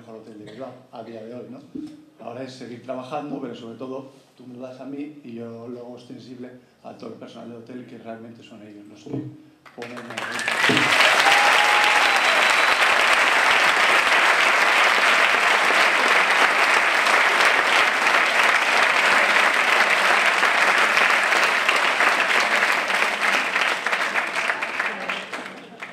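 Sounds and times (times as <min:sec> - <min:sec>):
audience applause: 0:09.8 - 0:25.9.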